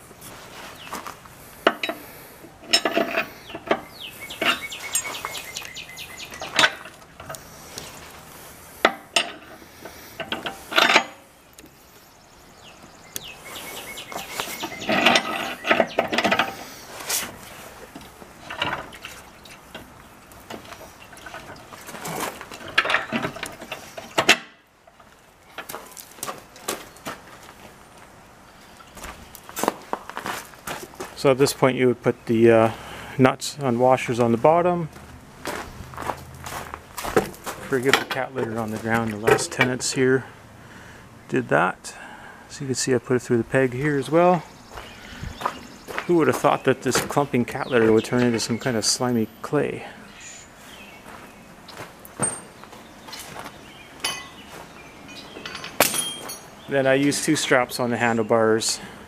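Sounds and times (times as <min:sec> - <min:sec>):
steel parts clinking and scraping: 0:01.6 - 0:08.2, 0:08.8 - 0:11.3, 0:13.5 - 0:26.6, 0:54.0 - 0:56.6
metal rattles: 0:02.6 - 0:05.2, 0:06.2 - 0:08.0, 0:10.2 - 0:11.3, 0:14.1 - 0:26.7, 0:54.0 - 0:56.7.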